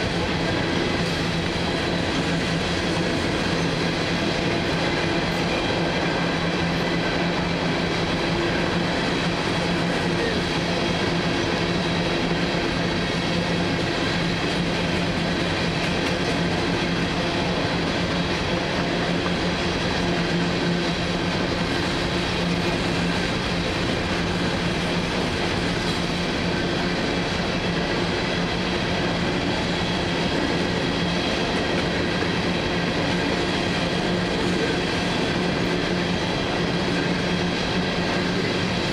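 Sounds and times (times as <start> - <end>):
freight train cars rolling: 0.0 - 38.9.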